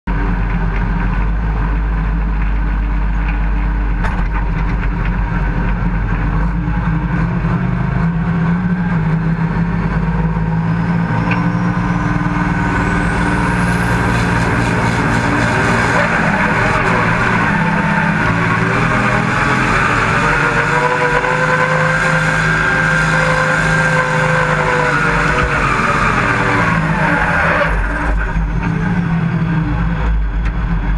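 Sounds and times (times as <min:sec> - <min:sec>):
diesel tractor engine running: 0:00.1 - 0:30.9
high turbo whine: 0:00.1 - 0:30.9.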